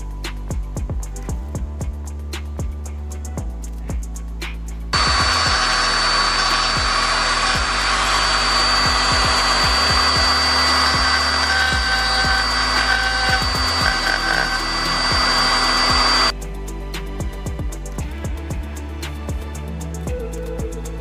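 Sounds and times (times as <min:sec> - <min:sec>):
background music: 0:00.0 - 0:21.0
rotary tool drilling plastic: 0:05.0 - 0:16.3.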